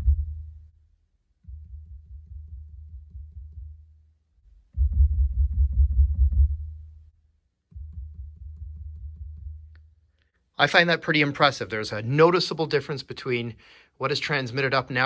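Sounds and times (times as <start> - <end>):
dull thuds through speakers: 0.0 - 0.6, 1.4 - 3.8, 4.7 - 6.9, 7.7 - 9.7.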